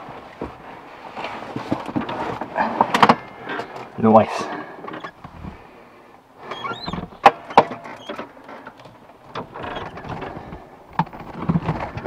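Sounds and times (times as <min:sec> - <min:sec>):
rising squeak: 0:06.4 - 0:07.2.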